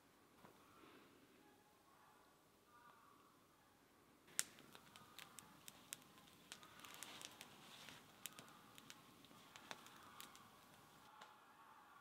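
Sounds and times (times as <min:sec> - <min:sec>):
wood fire crackling: 0:04.3 - 0:11.2.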